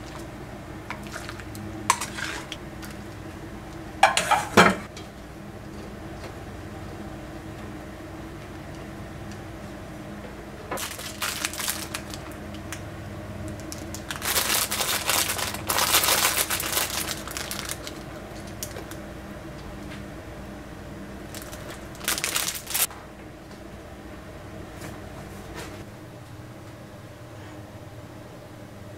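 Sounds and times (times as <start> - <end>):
steady low hum: 0.0 - 28.9
crinkling rustling handling noises: 10.7 - 19.1, 21.2 - 22.9.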